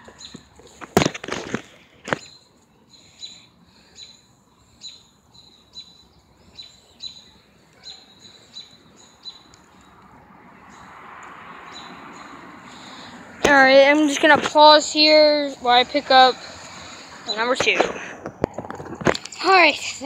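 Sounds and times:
bird chirping: 0:00.0 - 0:00.6, 0:02.1 - 0:13.1.

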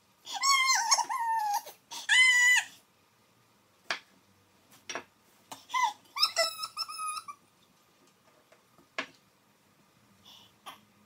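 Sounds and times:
dog whimpering: 0:00.3 - 0:02.7.

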